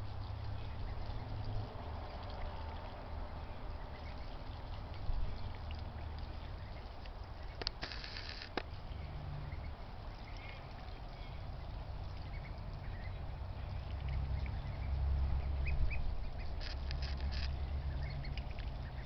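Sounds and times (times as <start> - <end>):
ducklings peeping: 0.6 - 1.4, 2.8 - 8.6, 9.4 - 19.0
sharp clicks: 7.6 - 8.7, 16.6 - 17.6.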